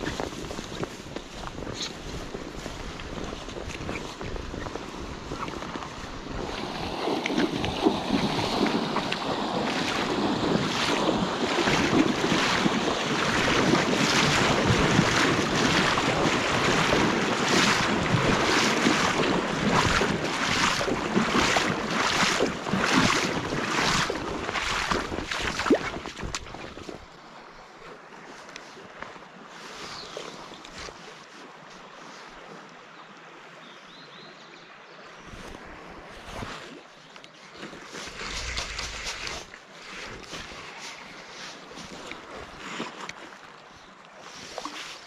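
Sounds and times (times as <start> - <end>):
boots splashing through water: 0.0 - 27.1, 37.4 - 45.0
wind noise on microphone: 0.0 - 27.1, 38.0 - 42.8.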